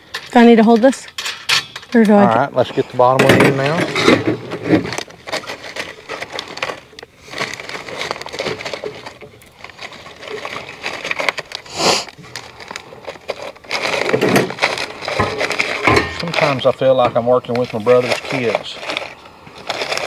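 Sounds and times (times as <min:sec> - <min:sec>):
metal bolts clicking and rattling: 0:00.0 - 0:02.4
rustling scrape: 0:02.6 - 0:20.0.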